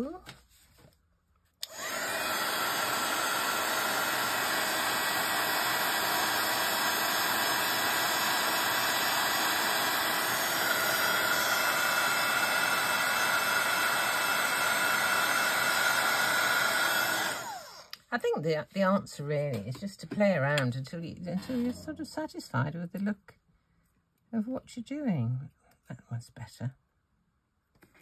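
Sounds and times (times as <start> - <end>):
heat tool blowing hot air: 1.6 - 17.9.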